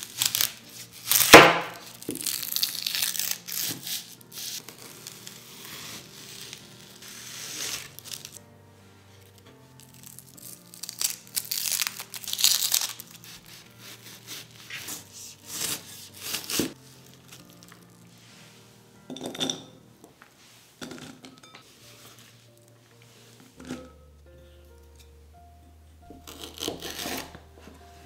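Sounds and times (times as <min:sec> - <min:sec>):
diced onion rustling: 0:00.0 - 0:08.4, 0:09.1 - 0:18.6
onion layers crackling: 0:00.0 - 0:08.4, 0:09.2 - 0:18.2, 0:26.2 - 0:28.0
soft background music: 0:00.0 - 0:28.0
knife chopping on cutting board: 0:01.2 - 0:01.8.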